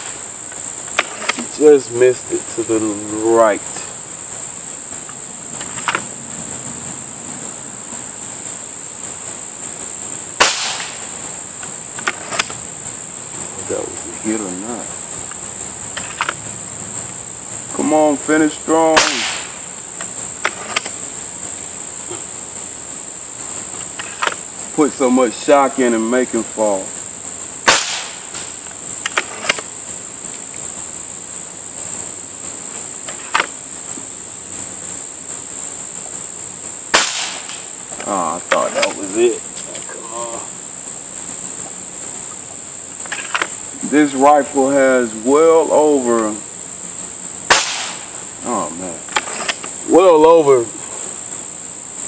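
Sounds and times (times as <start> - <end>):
insects buzzing: 0.0 - 52.0
air rifle shot: 10.4 - 11.1, 19.0 - 19.6, 27.6 - 28.5, 36.9 - 37.6, 47.5 - 48.2
rifle barrel snapping shut: 19.0 - 19.5, 43.1 - 43.5, 47.5 - 48.0
air rifle clicks: 19.0 - 21.0, 23.9 - 24.4, 29.1 - 29.7.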